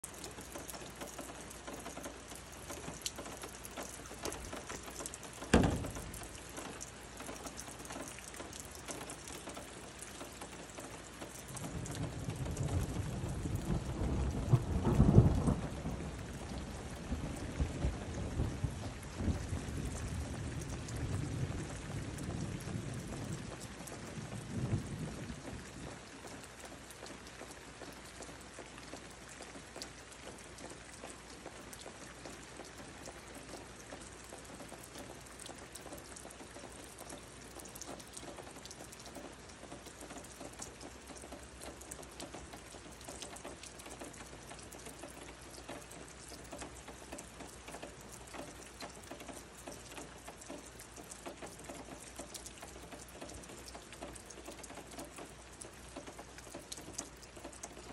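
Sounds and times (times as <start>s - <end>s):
rain falling: 0.0s - 57.9s
low thunder rumble: 5.5s - 6.5s, 11.6s - 26.0s.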